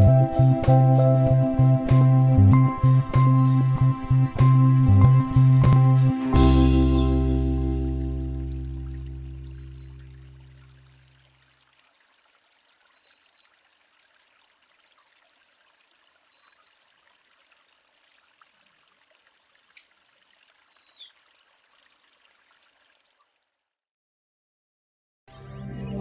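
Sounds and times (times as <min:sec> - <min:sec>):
background music: 0:00.0 - 0:09.4, 0:25.3 - 0:26.0
faint outdoor background hiss: 0:07.0 - 0:23.2
short high chirps and clicks: 0:09.4 - 0:10.0.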